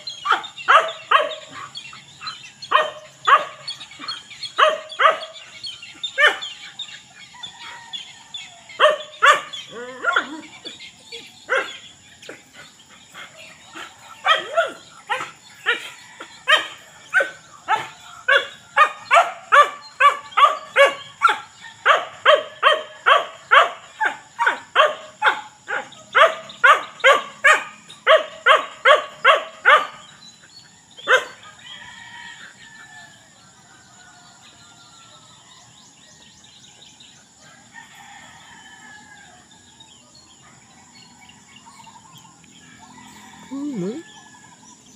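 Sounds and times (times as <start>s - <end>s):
bird calls: 0.0s - 44.9s
dog barking: 0.2s - 5.5s, 6.1s - 6.6s, 8.8s - 10.8s, 11.5s - 12.4s, 13.7s - 30.1s, 31.0s - 31.4s.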